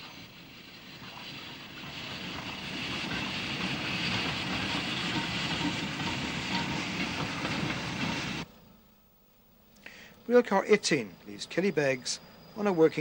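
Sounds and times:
train wagons rumbling and rattling: 0:00.0 - 0:08.5.

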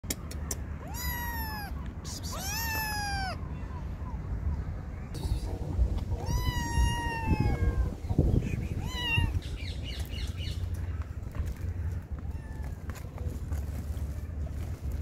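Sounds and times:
kitten meowing: 0:00.8 - 0:03.4, 0:06.2 - 0:08.0, 0:08.7 - 0:09.4, 0:12.2 - 0:12.8.

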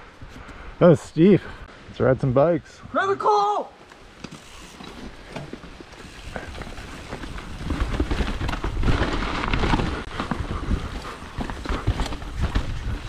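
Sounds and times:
bike tyres rolling on mud: 0:03.9 - 0:13.0
bike clattering over bumps: 0:04.2 - 0:13.0.

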